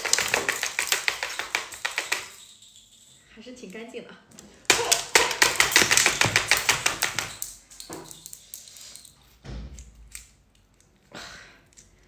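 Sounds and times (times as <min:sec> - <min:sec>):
scattered taps: 0:00.0 - 0:02.3, 0:04.7 - 0:07.4.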